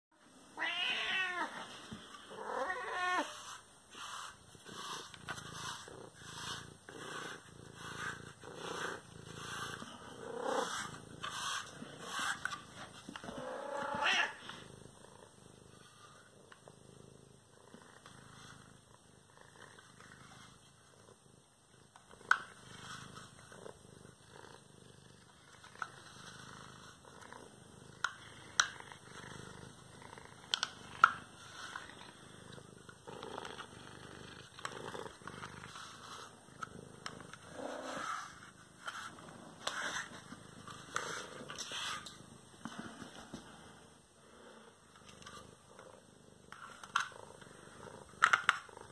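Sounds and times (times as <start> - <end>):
cat purring: 0.3 - 48.9.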